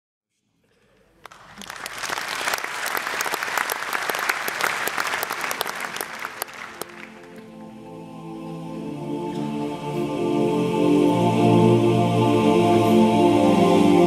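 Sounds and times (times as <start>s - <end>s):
audience applauding: 1.2s - 7.6s.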